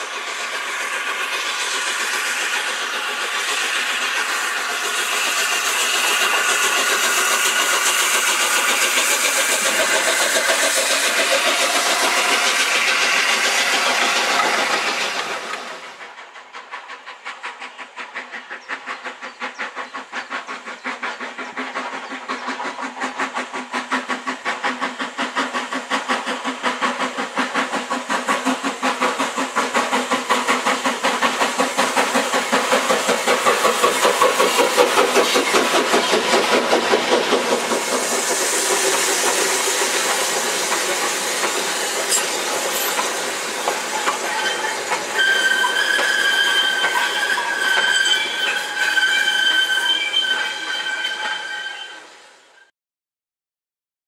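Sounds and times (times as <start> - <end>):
steam locomotive exhaust: 0.0 - 52.7.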